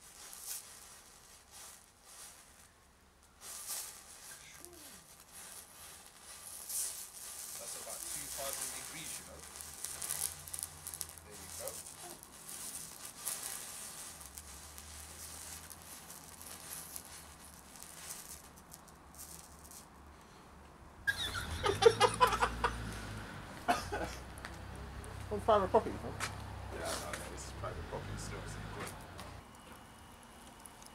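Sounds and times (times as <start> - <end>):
thermite hissing and crackling: 0.0 - 20.4, 21.1 - 30.9.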